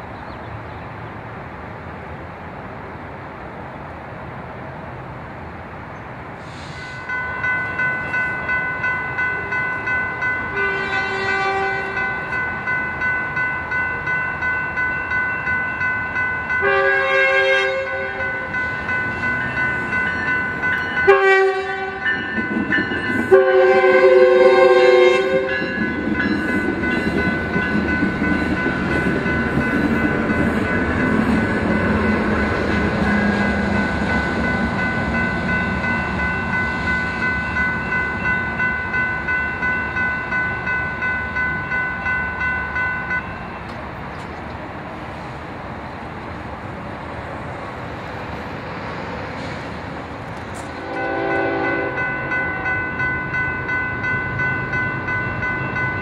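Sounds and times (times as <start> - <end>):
train running noise: 0.0 - 56.0
crossing bell ringing: 6.7 - 44.4, 50.3 - 56.0
train horn blasts: 10.5 - 12.3, 16.6 - 18.5, 21.1 - 22.2, 23.3 - 25.8, 33.0 - 33.8, 50.7 - 52.6.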